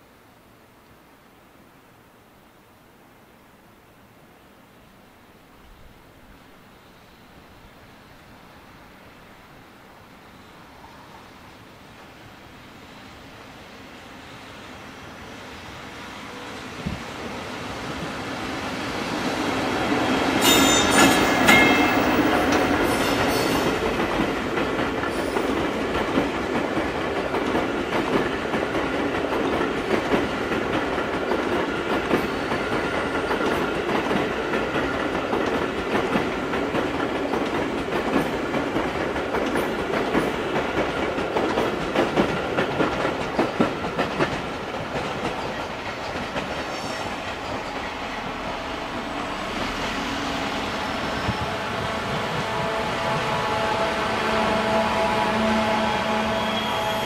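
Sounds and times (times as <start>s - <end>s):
train wheels rumbling on rails: 14.7s - 57.0s.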